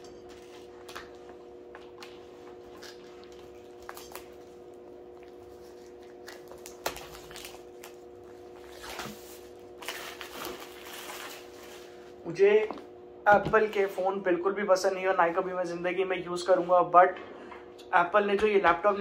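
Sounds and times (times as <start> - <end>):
steady low hum: 0.0 - 19.0
plastic shrink-wrap crackling: 5.9 - 11.9.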